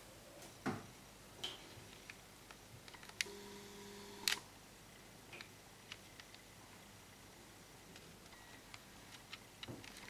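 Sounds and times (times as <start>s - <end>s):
camera zoom motor whirring: 3.2s - 4.4s.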